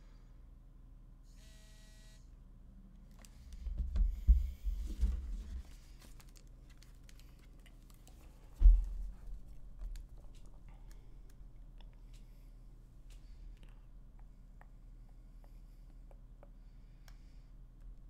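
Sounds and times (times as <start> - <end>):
brief buzz: 1.3 - 2.3.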